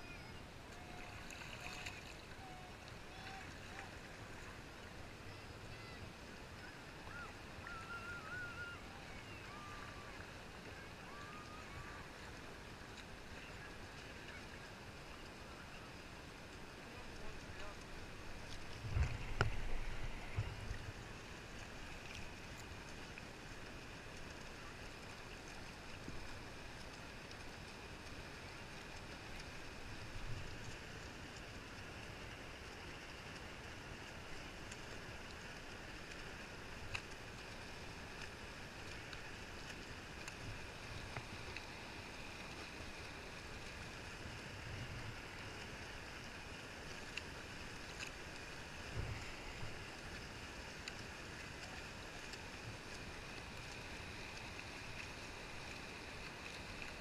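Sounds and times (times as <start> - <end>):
water lapping against hull: 0.0 - 57.0
soft low bumps: 18.5 - 21.0.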